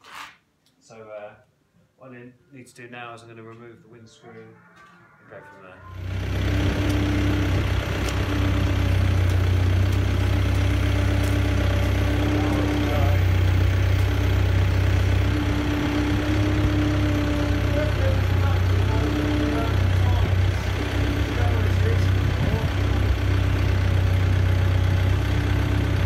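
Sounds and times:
diesel engine running: 5.8s - 26.0s.

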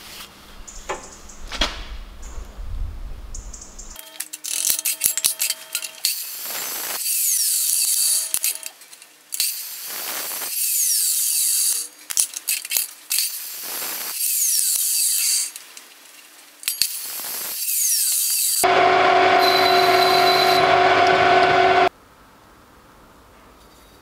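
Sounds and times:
chop saw cutting steel tube: 17.7s - 21.9s.

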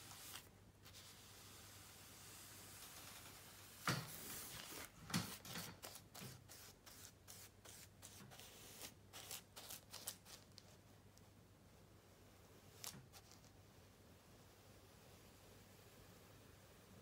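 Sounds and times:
paintbrush scratchy strokes: 0.0s - 10.9s.

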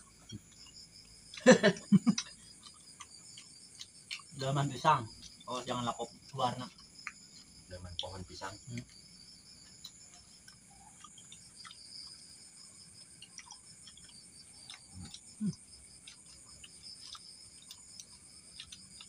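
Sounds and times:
crickets chirping: 0.0s - 19.0s
crunching of chips being eaten: 0.3s - 5.9s, 9.6s - 19.0s.

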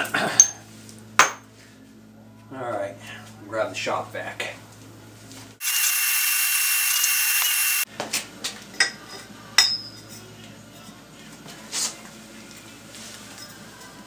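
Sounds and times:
shop vac running: 5.6s - 7.9s.

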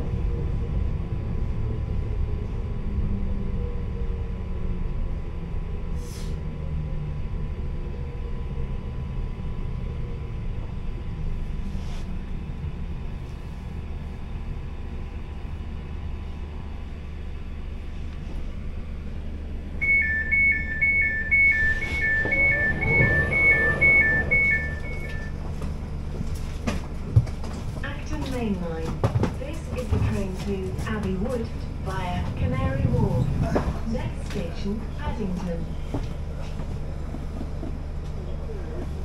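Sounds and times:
train running low rumble: 0.0s - 39.0s
low whine: 12.2s - 26.8s
two-note electronic beep: 19.8s - 25.4s.

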